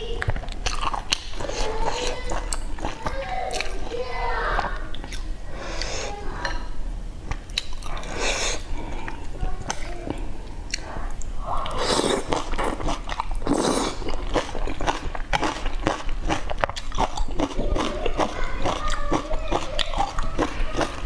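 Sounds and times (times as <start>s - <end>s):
wet chewing with lip-smacking: 0.3s - 3.9s, 4.7s - 5.9s, 7.3s - 21.0s
noodles slurped: 7.8s - 21.0s.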